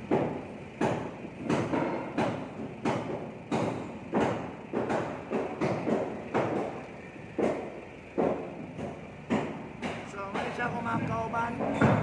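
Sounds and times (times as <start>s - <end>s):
knocks ringing in steel container: 9.9s - 12.0s.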